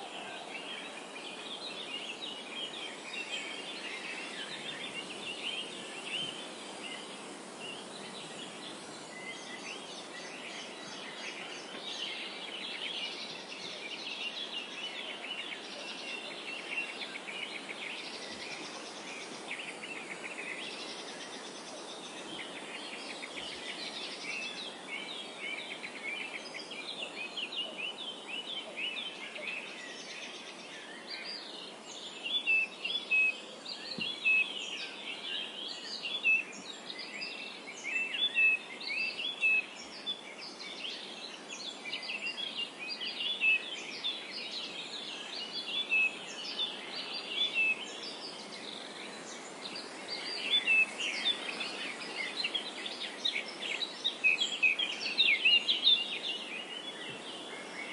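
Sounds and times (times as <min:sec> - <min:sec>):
small birds chirping and singing: 0:00.0 - 0:57.9
wind hiss: 0:00.0 - 0:57.9.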